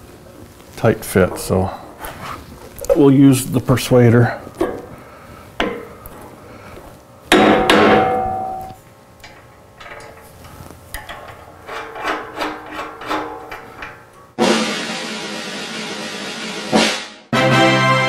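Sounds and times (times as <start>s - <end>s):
mallet striking steel bracket: 7.3s - 8.8s
metallic clicks and rattles: 8.6s - 14.3s.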